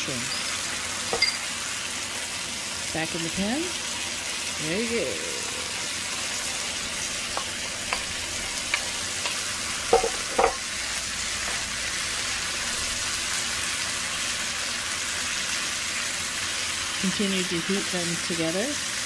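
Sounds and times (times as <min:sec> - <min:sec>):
vegetables sizzling in a frying pan: 0:00.0 - 0:19.0
wooden spoon knocking on pan: 0:07.3 - 0:10.7.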